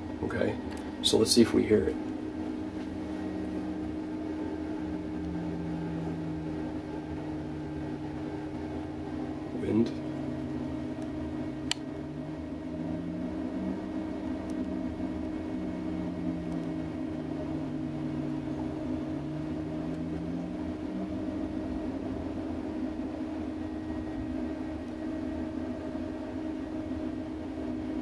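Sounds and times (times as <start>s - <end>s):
booster fan hum: 0.0s - 28.0s
wind turbine alternator hum: 0.0s - 28.0s
sharp click: 11.6s - 11.9s.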